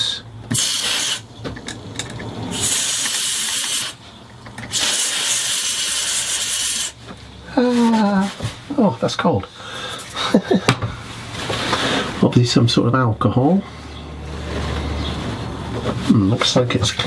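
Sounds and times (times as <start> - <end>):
aerosol can spraying: 0.5 - 1.3, 2.5 - 4.0, 4.7 - 7.0.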